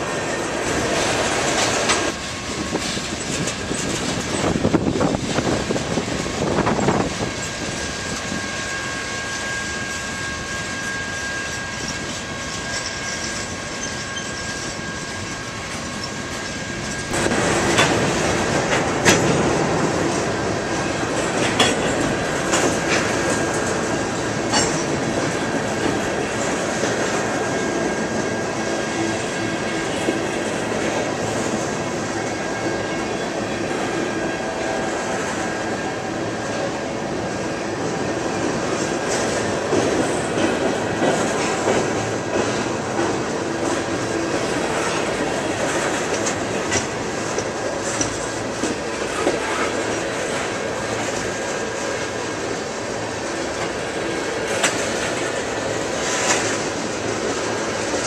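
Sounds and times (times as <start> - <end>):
wheel squeal: 0.0 - 17.2
train wheels rumbling on rail: 0.0 - 58.0
clacks over rail joints: 0.8 - 5.6, 15.7 - 28.4, 38.7 - 52.2, 54.4 - 58.0.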